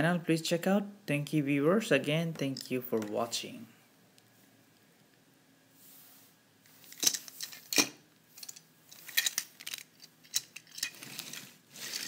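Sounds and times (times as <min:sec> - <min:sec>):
plastic toy clicks and rattles: 0:06.9 - 0:12.0.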